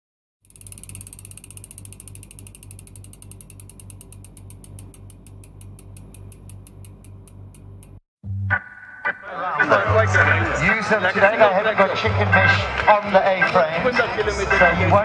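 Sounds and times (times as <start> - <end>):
bicycle freewheel ratchet clicking: 0.4 - 8.0.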